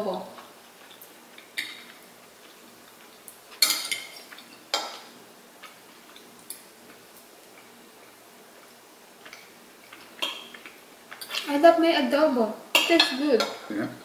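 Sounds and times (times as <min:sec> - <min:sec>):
cutlery clinking on plates: 0:03.6 - 0:05.1, 0:10.2 - 0:11.4.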